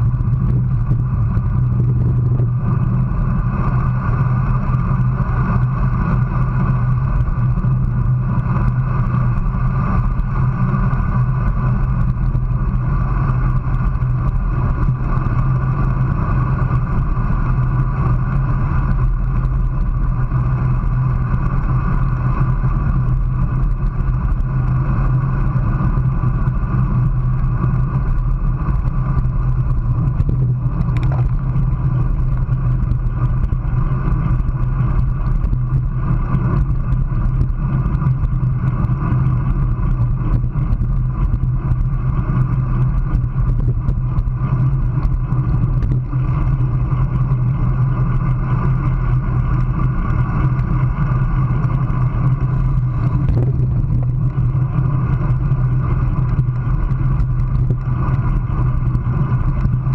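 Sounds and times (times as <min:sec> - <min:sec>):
bicycle tyre noise: 0:00.0 - 0:59.9
constant low hum: 0:00.0 - 0:59.9
wind rush over microphone: 0:00.0 - 0:59.9.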